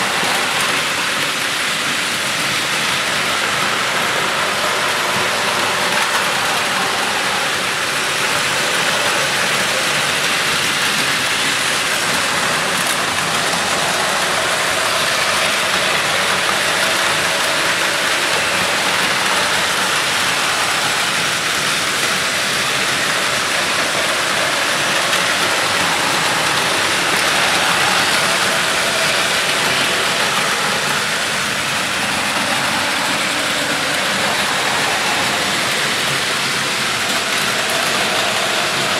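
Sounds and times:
toy trains clattering on plastic track: 0.0 - 38.9.

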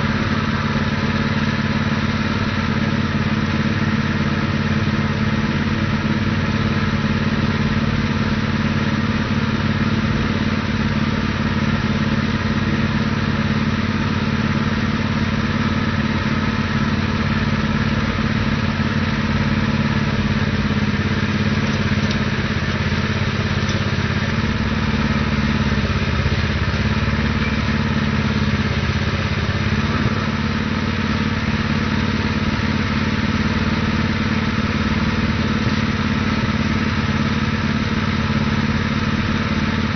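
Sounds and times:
petrol engine running: 0.0 - 39.9.

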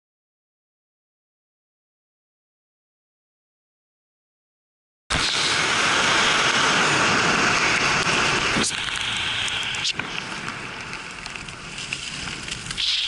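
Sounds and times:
skis sliding over snow: 5.1 - 13.0
wind on microphone: 5.1 - 13.0.

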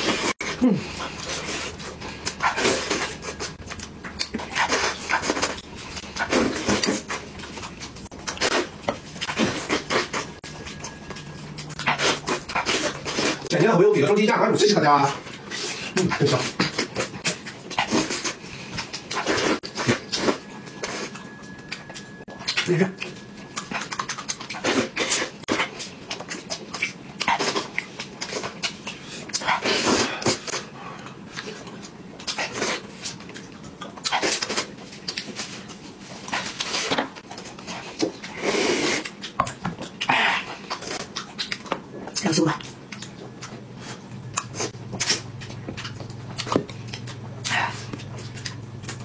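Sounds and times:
chewing and lip-smacking: 0.0 - 49.0.

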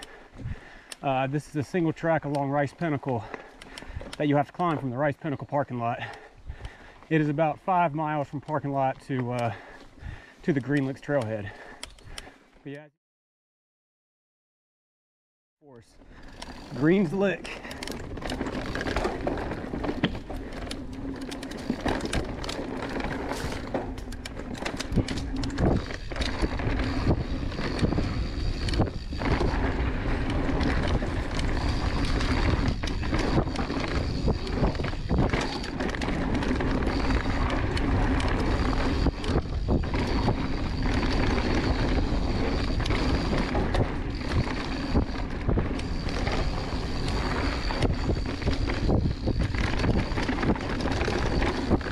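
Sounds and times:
bike tyres rolling over dirt: 0.0 - 11.7, 15.8 - 51.9
bike clicks and knocks: 16.0 - 51.9
freewheel buzz: 16.1 - 51.9
wind buffeting microphone: 17.4 - 51.9.

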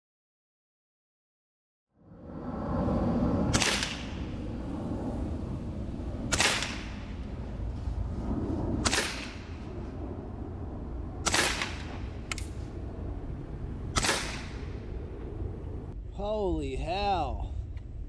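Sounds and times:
air pistol shots: 3.5 - 4.2, 6.3 - 7.1, 8.8 - 9.5, 11.2 - 12.5, 13.9 - 14.7.

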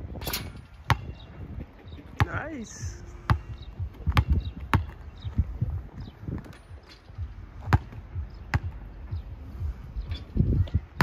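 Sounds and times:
basketball bouncing on court: 0.8 - 1.2, 3.3 - 5.0, 7.6 - 8.8.

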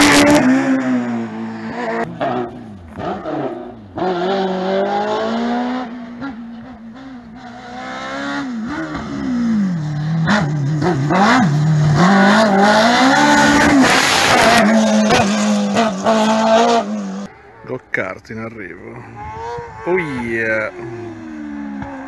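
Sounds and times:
racing car engine revving: 0.0 - 17.3.

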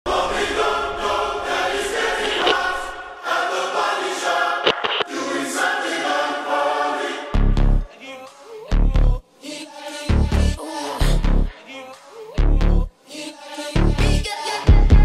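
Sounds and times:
choir-like harmony singing: 0.1 - 14.9
sharp clicks: 4.6 - 5.1.

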